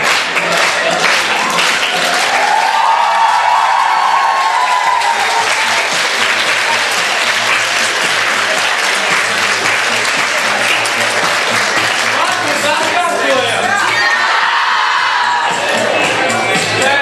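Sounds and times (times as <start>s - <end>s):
audience applauding: 0.0s - 16.0s
drawn-out cheer: 0.4s - 7.3s, 13.7s - 15.8s.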